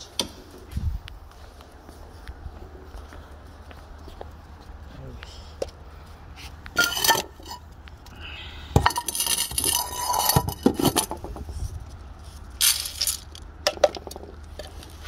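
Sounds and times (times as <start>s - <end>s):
pan scraping on concrete: 6.8s - 7.7s, 8.8s - 11.7s.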